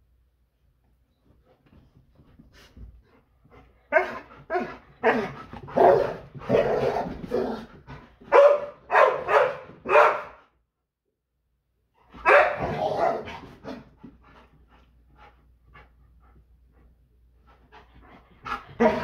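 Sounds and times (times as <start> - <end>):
dog barking: 3.9 - 6.8, 8.3 - 10.4, 12.2 - 13.3.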